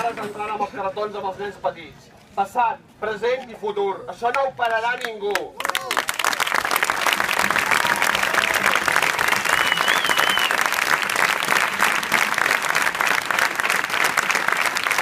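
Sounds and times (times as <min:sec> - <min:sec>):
crowd applauding: 0:05.4 - 0:15.0.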